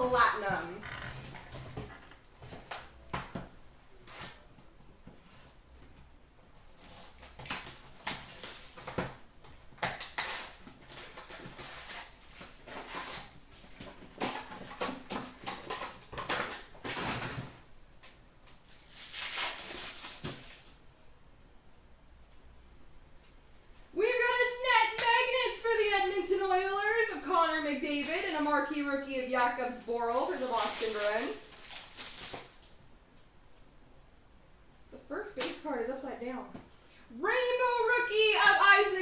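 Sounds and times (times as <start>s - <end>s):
wrapper and cardboard rustling: 6.5s - 17.6s, 18.4s - 20.8s, 27.9s - 32.8s.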